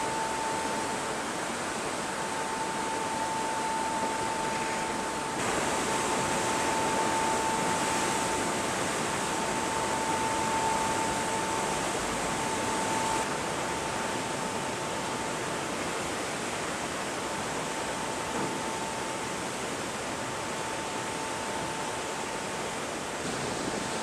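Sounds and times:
high-pitched hum: 0.0 - 15.4
ship wake churning: 0.0 - 24.0.

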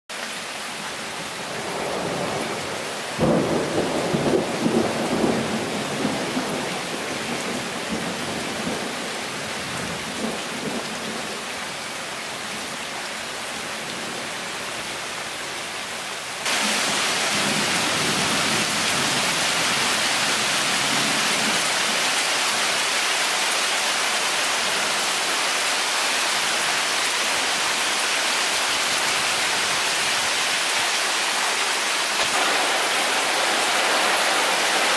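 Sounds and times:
heavy rain on leaves: 0.1 - 34.9
thunder rumbling: 1.5 - 11.3, 32.2 - 34.9.

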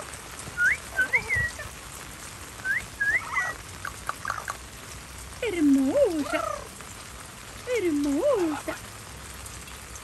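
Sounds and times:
parrot whistled calls: 0.6 - 1.6, 2.6 - 4.6.

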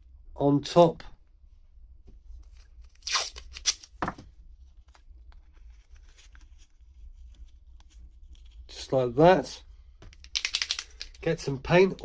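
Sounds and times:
adhesive tape pulled: 2.8 - 4.0, 10.2 - 11.2.

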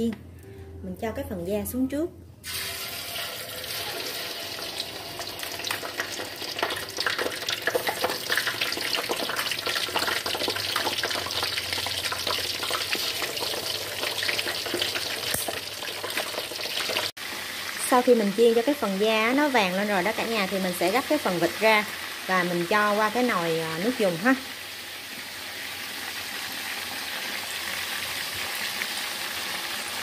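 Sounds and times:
meat deep-frying in hot oil: 2.4 - 30.0.

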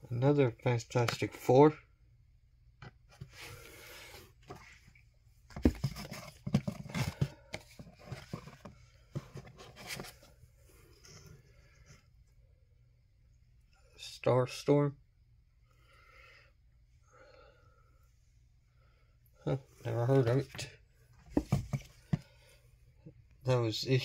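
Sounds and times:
comic books shuffling in cardboard box: 3.1 - 11.5, 20.0 - 22.4.

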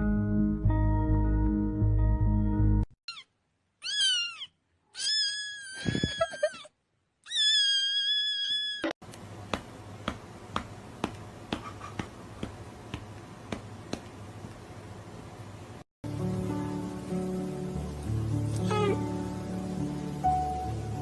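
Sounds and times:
cat meowing: 3.1 - 6.6, 7.2 - 8.9, 18.6 - 19.1.

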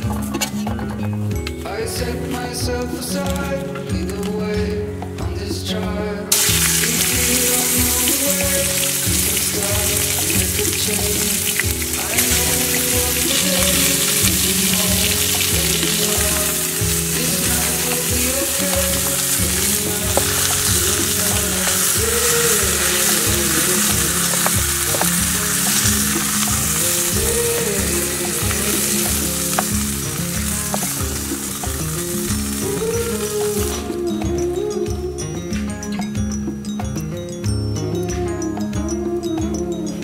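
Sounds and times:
background music: 0.0 - 40.0
steaks sizzling in skillet: 6.3 - 33.9.

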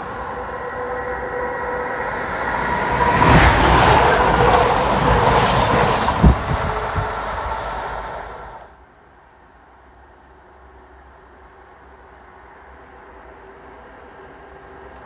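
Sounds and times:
train whine: 0.0 - 8.8
train passing at speed: 0.0 - 10.0.

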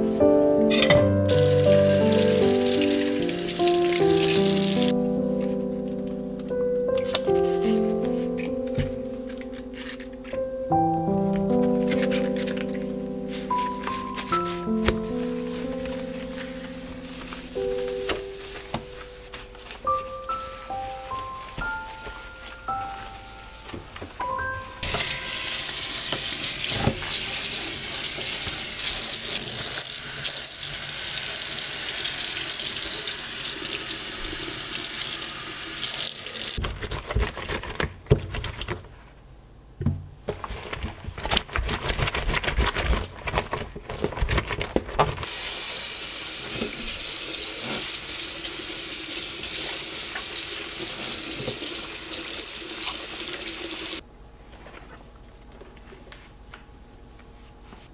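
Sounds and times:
scrubbing and knocking in sink: 46.2 - 53.3.

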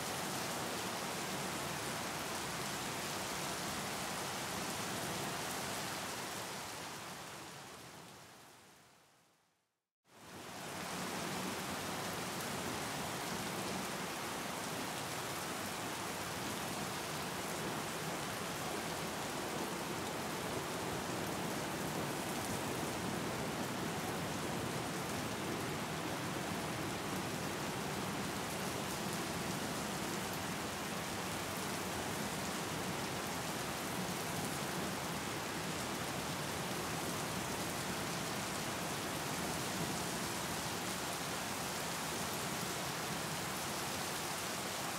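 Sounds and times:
rain splashing on water: 10.2 - 44.9.

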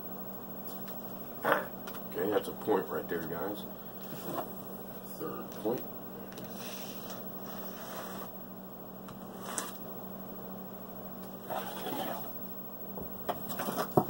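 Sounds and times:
low steady hum: 0.0 - 14.0
dice sliding on felt: 6.5 - 8.3, 9.3 - 9.8.

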